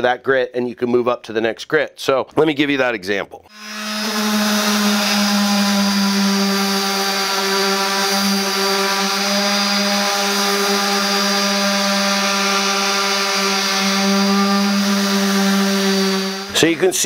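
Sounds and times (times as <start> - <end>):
orbital sander humming: 3.5 - 16.8.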